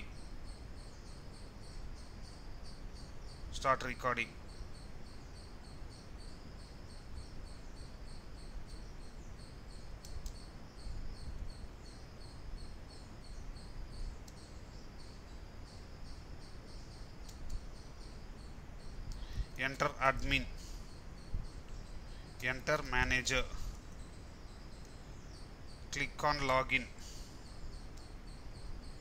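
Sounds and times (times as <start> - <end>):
insect chirping: 0.0 - 29.0
low background hum: 0.0 - 29.0
faint clicks: 10.0 - 10.5, 17.2 - 17.7, 19.1 - 19.6.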